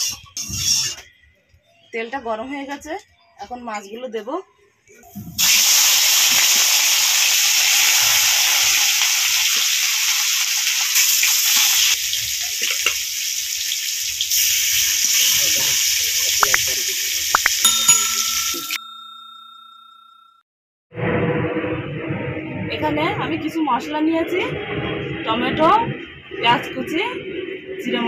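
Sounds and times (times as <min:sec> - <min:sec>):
fish sizzling in hot oil: 0:05.4 - 0:17.5
electronic ding tone: 0:17.4 - 0:20.4.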